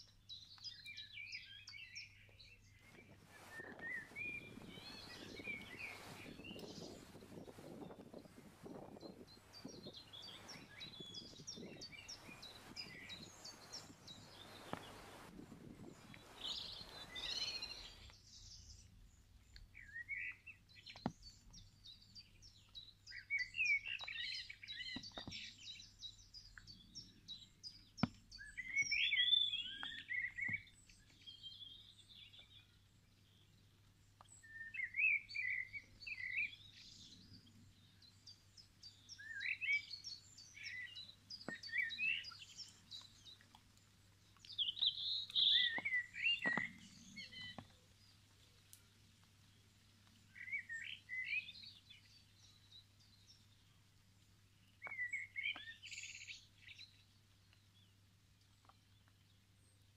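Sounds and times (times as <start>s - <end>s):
songbirds singing: 0.0s - 59.9s
faint clicks: 1.7s - 20.0s, 40.5s - 50.7s.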